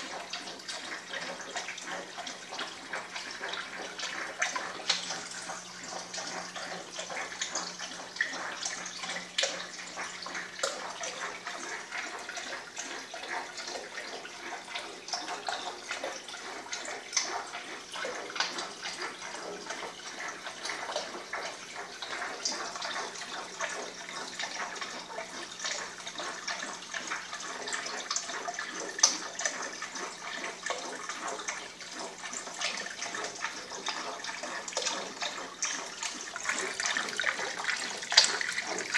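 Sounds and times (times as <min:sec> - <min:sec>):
water trickling and splashing: 0:00.0 - 0:38.9.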